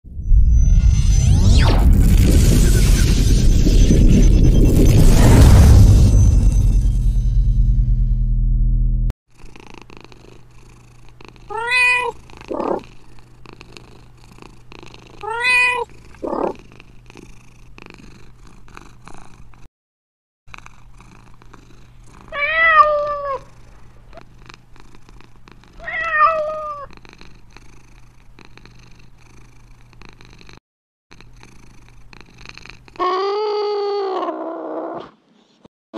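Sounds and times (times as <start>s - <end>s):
cat purring: 9.4s - 15.3s, 15.9s - 19.7s, 20.5s - 22.4s, 23.4s - 25.8s, 26.4s - 35.6s
cat meowing: 11.5s - 12.8s, 15.2s - 16.6s, 22.3s - 23.5s, 25.8s - 26.9s, 33.0s - 35.1s.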